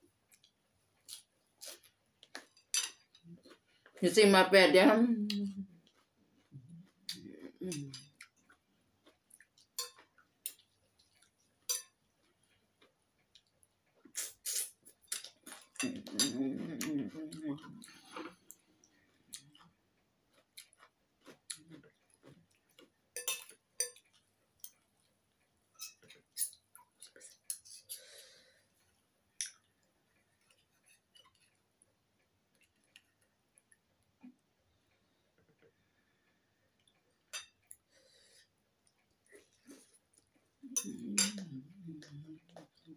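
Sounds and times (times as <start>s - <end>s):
faint chewing: 0.0s - 4.0s, 5.2s - 42.9s
cutlery clinking on ceramic bowl: 2.4s - 3.1s, 9.8s - 10.1s, 11.6s - 12.0s, 23.2s - 24.8s, 40.8s - 41.4s
eating sounds: 12.2s - 25.1s.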